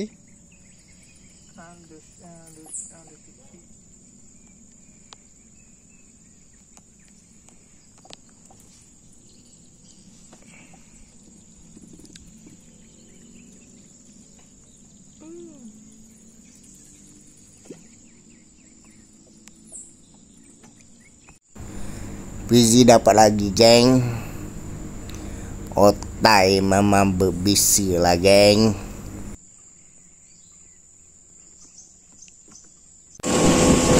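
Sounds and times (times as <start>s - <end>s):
high-pitched insect drone: 21.6s - 29.4s.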